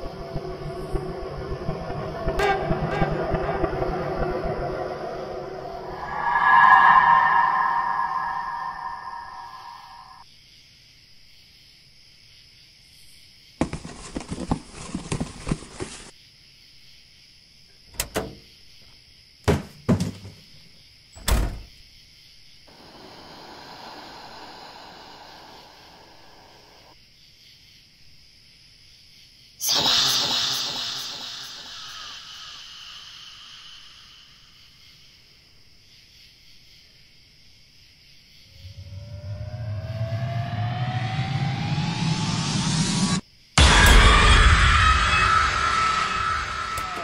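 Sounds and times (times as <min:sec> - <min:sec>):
latch clicking: 0:18.0 - 0:18.4
wooden door rattling and knocking: 0:19.5 - 0:20.4
thuds: 0:19.5 - 0:20.5
raspy hissing: 0:22.7 - 0:26.9, 0:29.6 - 0:34.5.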